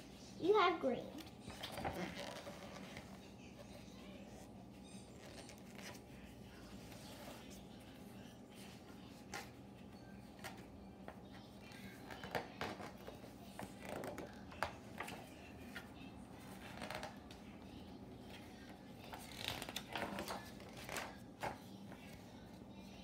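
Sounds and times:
book pages turning: 1.2 - 4.4, 5.0 - 7.9, 12.1 - 17.5, 19.0 - 22.2.

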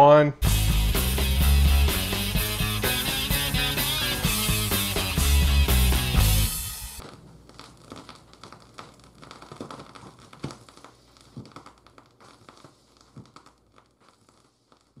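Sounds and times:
vinyl record crackles and pops: 0.4 - 15.0
faint record hiss: 6.9 - 15.0.

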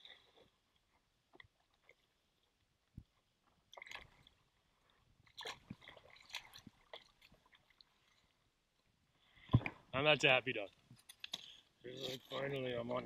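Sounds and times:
small splashes of shallow water: 0.0 - 9.9
water sloshing and dripping: 0.0 - 9.9.

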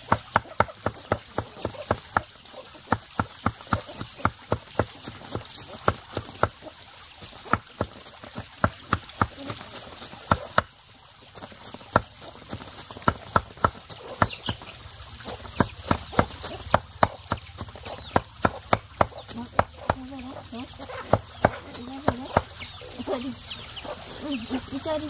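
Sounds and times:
cleaver chopping on wooden board: 0.0 - 2.3, 2.9 - 6.6, 7.5 - 10.7, 11.9 - 14.6, 15.2 - 22.6.

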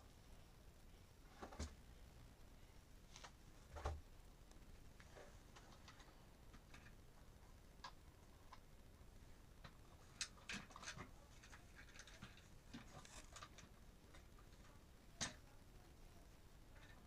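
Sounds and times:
plastic toy train clicks and knocks: 10.1 - 13.7.

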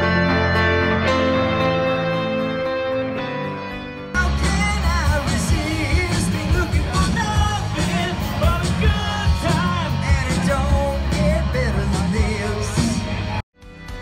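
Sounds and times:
live rock band playing: 0.0 - 14.0
lead singer singing: 4.2 - 13.3.

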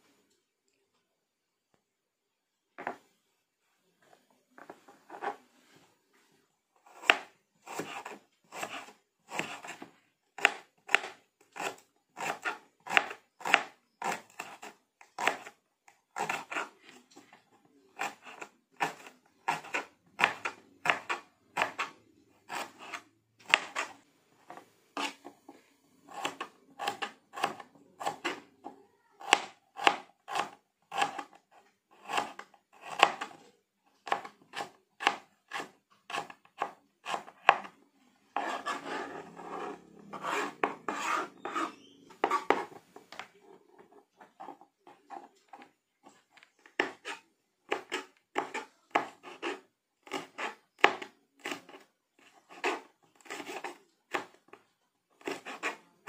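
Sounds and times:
knife slicing on cutting board: 18.0 - 24.0, 25.0 - 25.3, 38.4 - 43.2.

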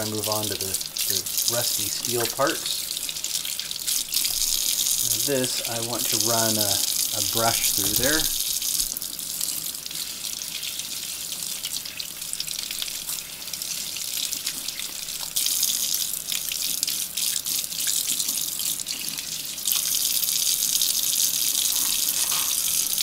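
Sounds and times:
tap running into sink: 2.0 - 2.7.

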